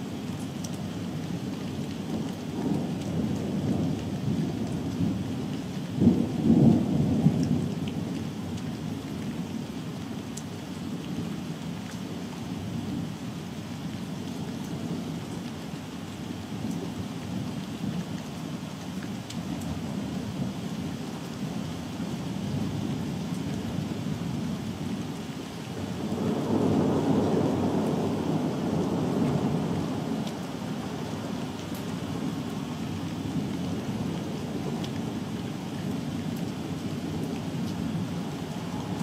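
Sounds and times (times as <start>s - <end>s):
rain falling: 0.0s - 39.0s
rolling thunder: 26.0s - 30.5s.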